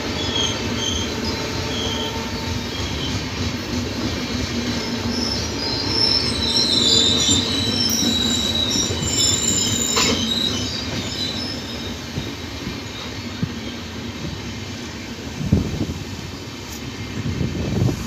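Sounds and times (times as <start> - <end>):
train wheels squealing: 0.0 - 3.6, 4.4 - 14.1
train coaches rumbling past: 0.0 - 18.0.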